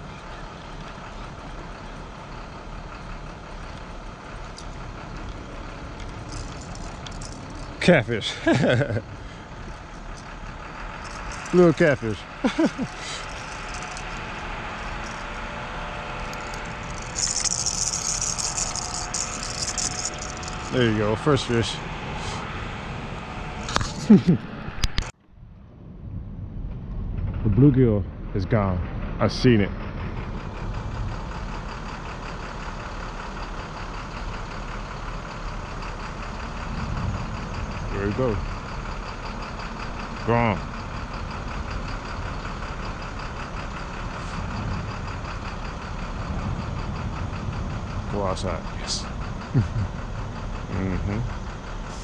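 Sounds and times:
motor idling: 0:00.0 - 0:25.1, 0:30.2 - 0:52.0
road traffic hum: 0:00.0 - 0:52.0
fishing reel whirring: 0:05.8 - 0:07.8, 0:09.1 - 0:21.0.

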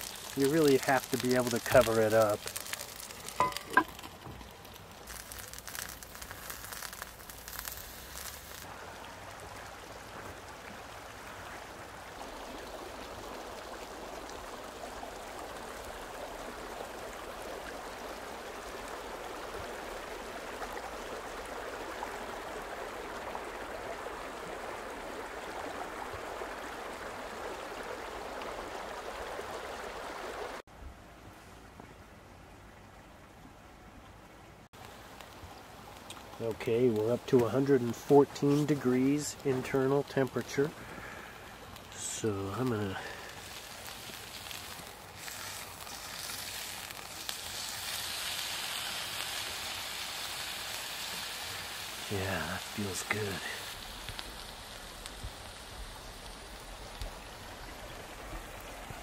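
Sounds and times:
steak sizzling on grill pan: 0:00.0 - 0:08.7, 0:42.0 - 0:57.1.

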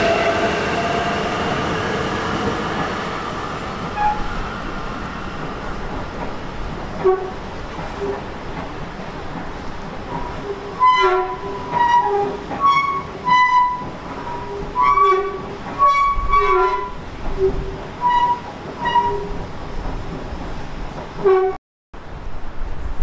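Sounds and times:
locomotive horn toots: 0:00.0 - 0:01.3, 0:03.9 - 0:04.4, 0:07.0 - 0:07.4, 0:10.4 - 0:19.4, 0:21.2 - 0:21.6
train noise: 0:00.0 - 0:23.0.

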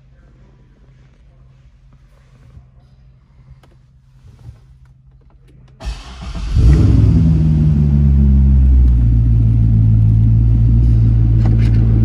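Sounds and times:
car engine starting and idling: 0:05.4 - 0:12.0.

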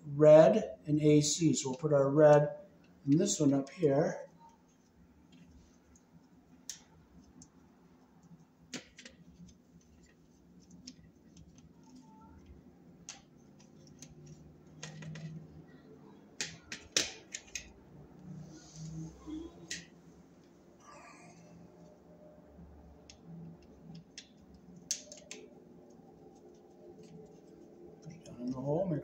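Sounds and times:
faint low hum: 0:17.5 - 0:29.0.

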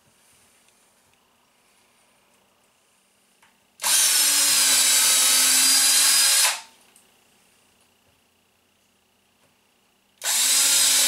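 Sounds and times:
cordless drill boring into plastic: 0:03.8 - 0:06.7, 0:10.2 - 0:11.0.

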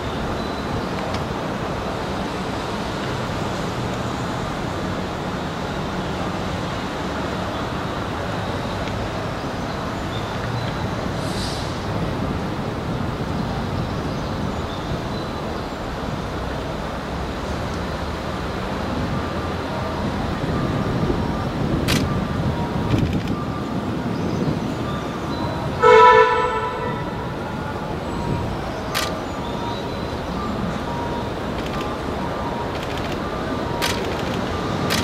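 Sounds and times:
urban traffic rumble: 0:00.0 - 0:35.0
brief high hiss: 0:11.2 - 0:11.8.

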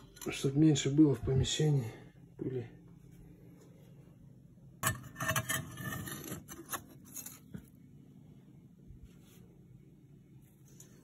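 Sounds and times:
metal scoop scraping brick: 0:04.8 - 0:07.4.

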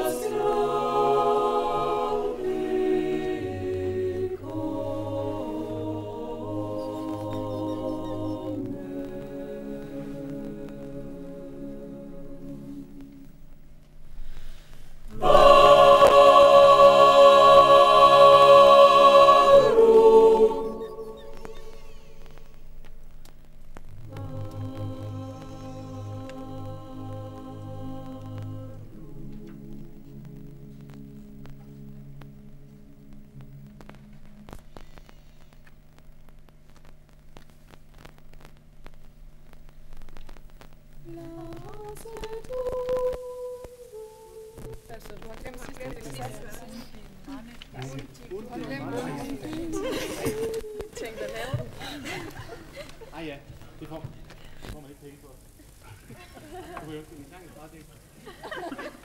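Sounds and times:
choir singing sustained chord: 0:00.0 - 0:13.3, 0:15.1 - 0:22.4, 0:24.0 - 0:33.9
electrical hum: 0:00.0 - 0:59.0
static hiss: 0:00.0 - 0:59.0
voice in gliding tones: 0:15.1 - 0:22.6.

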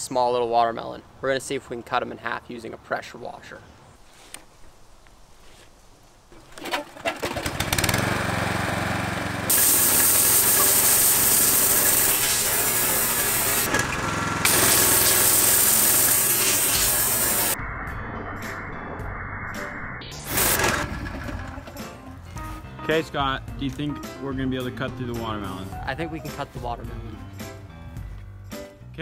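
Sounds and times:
pressure washer engine running: 0:07.4 - 0:17.6, 0:20.3 - 0:21.4
water jet hissing on concrete: 0:09.5 - 0:13.7, 0:14.4 - 0:17.6.

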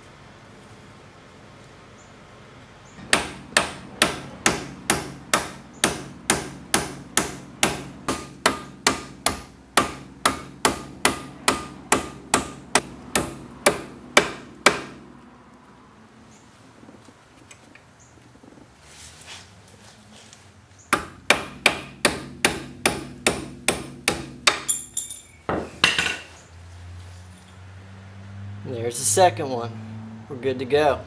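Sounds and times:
hammer tapping metal punch: 0:03.0 - 0:15.1, 0:21.0 - 0:26.2.

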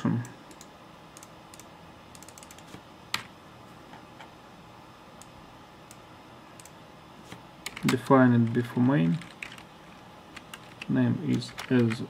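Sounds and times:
keyboard keys tapping: 0:07.6 - 0:08.6, 0:09.2 - 0:09.6, 0:10.4 - 0:12.0.

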